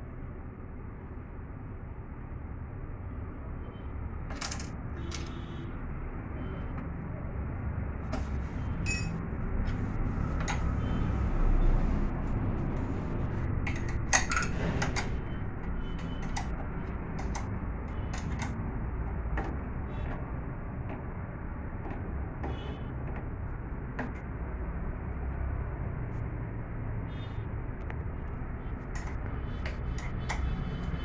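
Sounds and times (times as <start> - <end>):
spanner clicking on bolt: 16.0 - 18.6.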